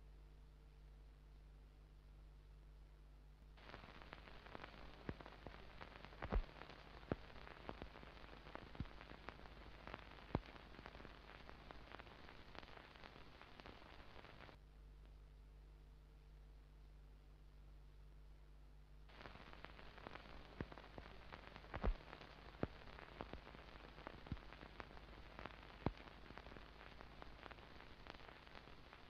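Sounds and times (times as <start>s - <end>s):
record surface hiss and crackle: 0.0s - 29.0s
sharp pops and clicks: 3.6s - 14.5s, 19.1s - 29.0s.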